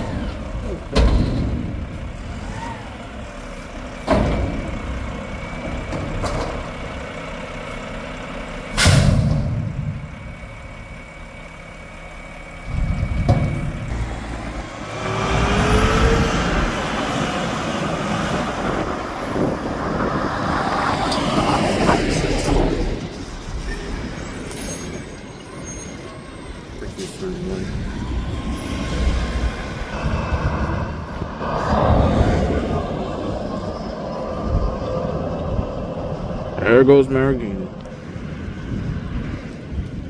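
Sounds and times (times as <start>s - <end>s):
diesel engine revving with whine: 0.0s - 24.6s, 26.3s - 40.0s
loud metal bangs of dumpster: 8.8s - 10.0s.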